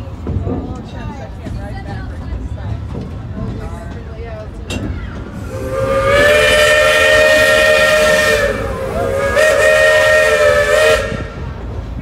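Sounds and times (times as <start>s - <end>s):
steam locomotive whistle blasts: 5.4s - 11.5s
steam hiss: 5.4s - 11.6s.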